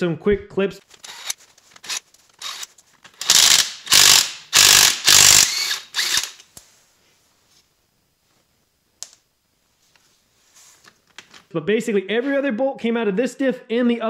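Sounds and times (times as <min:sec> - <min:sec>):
impact wrench hammering at a bolt: 0:03.2 - 0:06.4.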